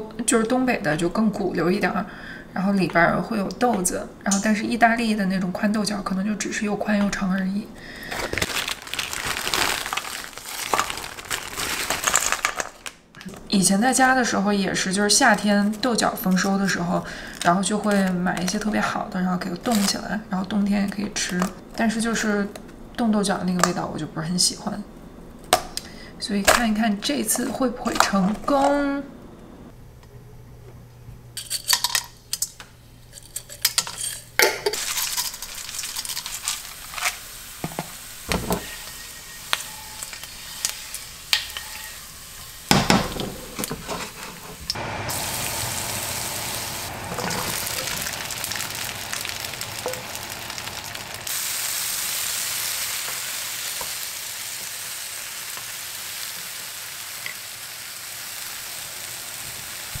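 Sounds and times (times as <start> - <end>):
food sizzling in a pan: 34.8 - 60.0
kitchenware clattering: 42.6 - 44.7, 47.0 - 48.6.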